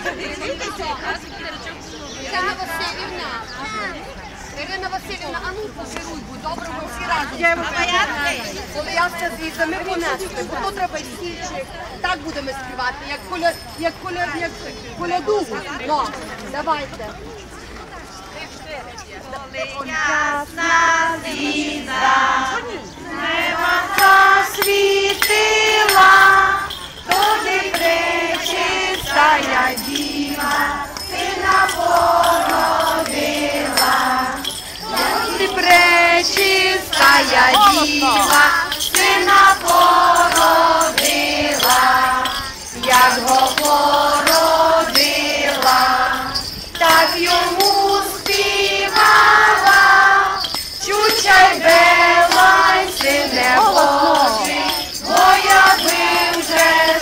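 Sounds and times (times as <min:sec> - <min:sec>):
bells jingling: 0:00.0 - 0:17.0, 0:19.8 - 0:57.0
children singing a carol: 0:19.9 - 0:57.0.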